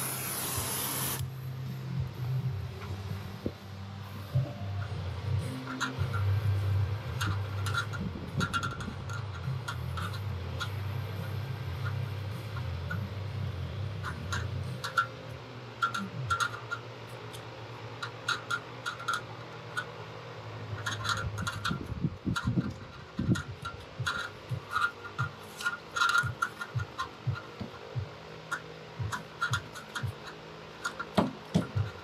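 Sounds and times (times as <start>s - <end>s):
low hum: 0.0s - 32.0s
small clicks and rubbing: 5.5s - 13.1s, 14.0s - 15.1s, 15.8s - 20.0s, 20.7s - 27.9s, 28.5s - 32.0s
soft low thumps: 29.0s - 30.2s.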